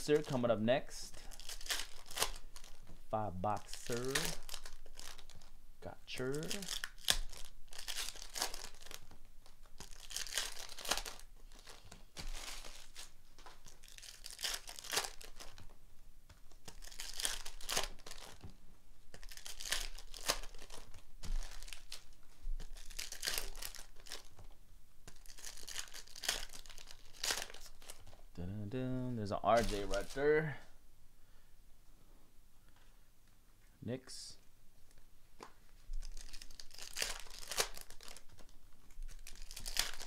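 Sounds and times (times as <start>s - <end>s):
foil packs ripped and crumpled: 1.3s - 2.8s, 6.3s - 9.1s, 9.7s - 15.6s, 16.6s - 18.4s, 19.1s - 24.4s, 25.1s - 28.1s, 36.0s - 40.0s.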